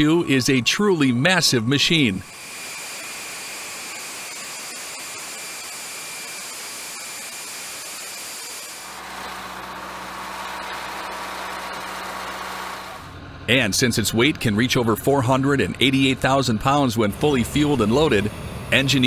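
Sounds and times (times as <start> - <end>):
turbine whine with hiss: 0.0 - 19.0
low engine hum: 13.0 - 19.0.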